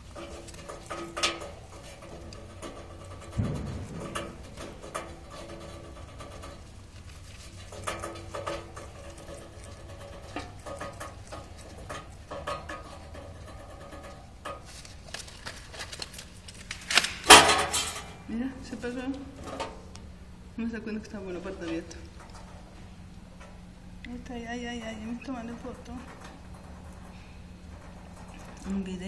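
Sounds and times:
bump: 0:03.0 - 0:06.5.

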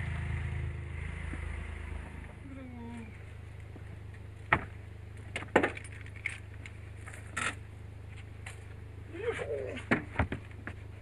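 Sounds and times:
low steady hum: 0:00.0 - 0:11.0
leash hardware clinking: 0:05.6 - 0:07.6.

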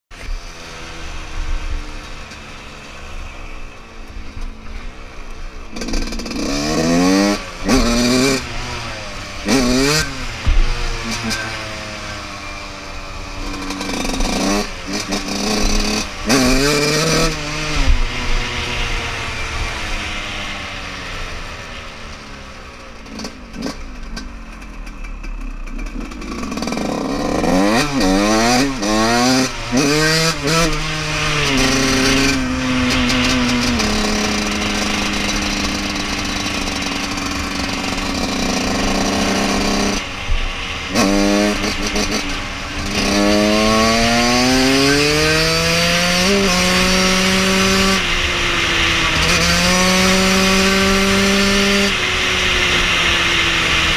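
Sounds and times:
dirt bike engine revving: 0:05.5 - 0:24.8, 0:25.4 - 0:53.9.

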